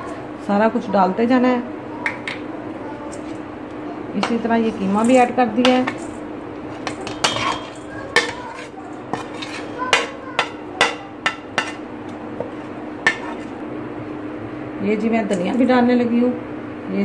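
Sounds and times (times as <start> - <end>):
steady low hum: 0.0 - 17.0
spoon knocking on metal bowl: 9.9 - 11.8.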